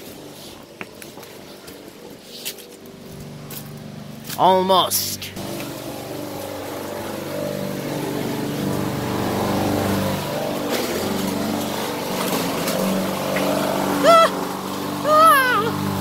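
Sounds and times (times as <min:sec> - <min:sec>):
engine running with low hum: 0:00.0 - 0:16.0.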